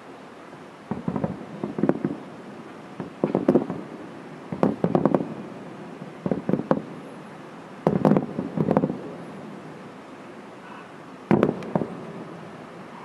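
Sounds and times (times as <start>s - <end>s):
fireworks bangs: 0.9s - 7.1s, 7.8s - 9.6s, 11.3s - 13.0s.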